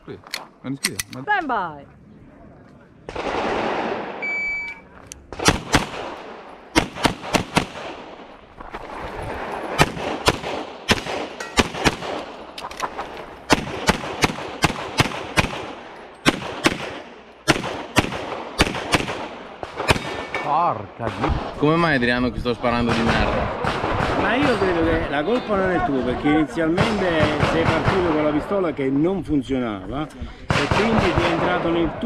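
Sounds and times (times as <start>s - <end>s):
shot timer beep: 4.2s - 4.8s
pistol shots: 5.3s - 8.3s, 9.7s - 12.4s, 13.5s - 20.4s.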